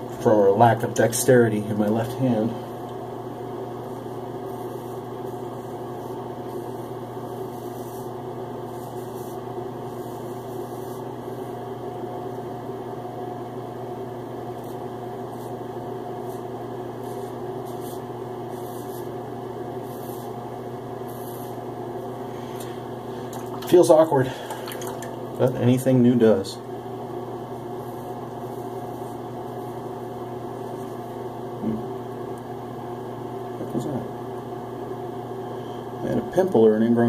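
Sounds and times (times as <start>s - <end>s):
steady mechanical hum: 0.0s - 37.0s
razor scraping stubble: 4.5s - 11.1s, 16.2s - 19.2s, 19.8s - 20.4s, 21.1s - 21.6s.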